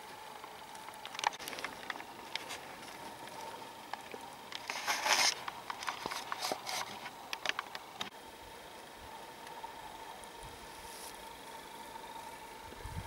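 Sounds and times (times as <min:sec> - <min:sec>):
footsteps crackling twigs: 0:00.1 - 0:08.1.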